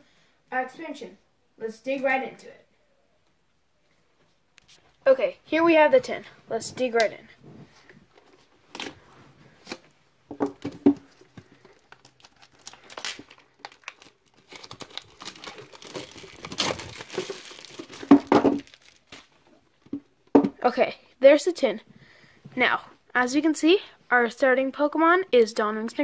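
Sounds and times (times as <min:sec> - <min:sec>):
plastic wrap crinkling and tearing: 0:11.1 - 0:19.6
knife slitting plastic wrap: 0:12.2 - 0:19.2.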